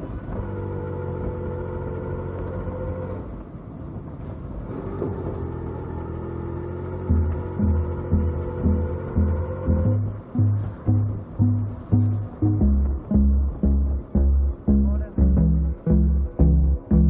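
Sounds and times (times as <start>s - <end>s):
synth chords over low drone: 5.4s - 17.0s
steady kick-drum beat: 7.1s - 17.0s.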